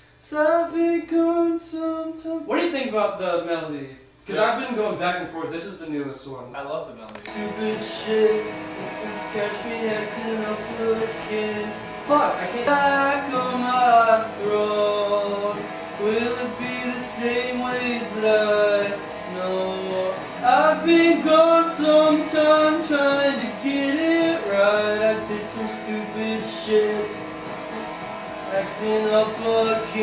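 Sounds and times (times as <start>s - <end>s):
man singing: 0.2s - 2.5s, 7.2s - 30.0s
guitar accompaniment: 7.1s - 30.0s.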